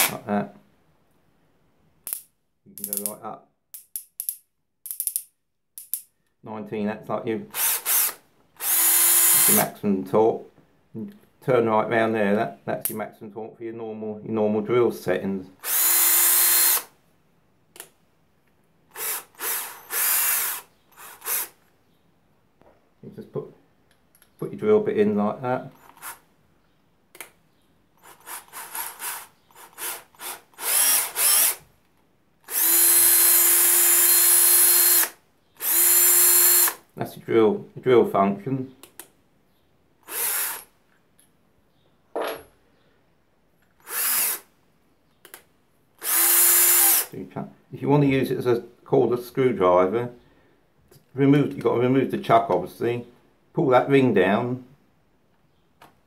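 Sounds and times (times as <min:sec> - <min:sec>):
cordless drill whirring: 0:07.5 - 0:09.6, 0:15.6 - 0:16.9, 0:18.9 - 0:21.6, 0:25.8 - 0:26.2, 0:28.0 - 0:31.6, 0:32.5 - 0:36.8, 0:40.0 - 0:40.7, 0:43.8 - 0:44.5, 0:46.0 - 0:47.1.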